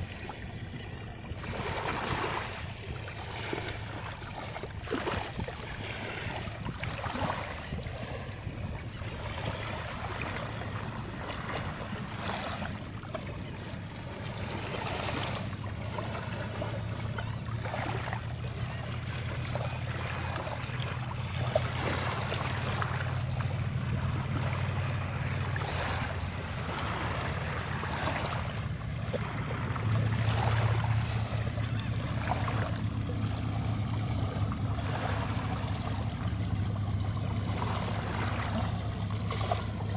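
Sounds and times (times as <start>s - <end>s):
water swishing over wet sand: 0.0s - 39.9s
steady low drone: 22.4s - 39.9s.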